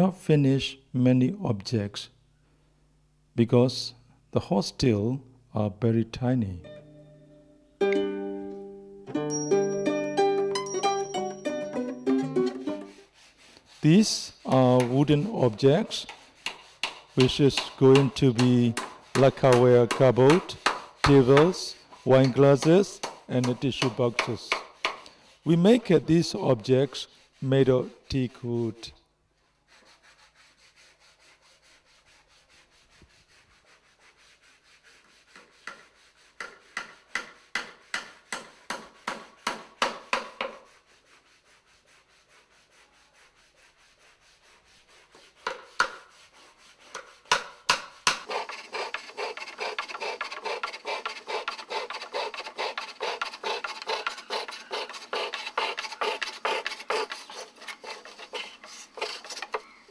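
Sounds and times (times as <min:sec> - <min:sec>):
wood being scraped by hand: 0:12.8 - 0:28.2, 0:29.6 - 0:59.9
fretsaw cutting wooden board: 0:45.0 - 0:59.8.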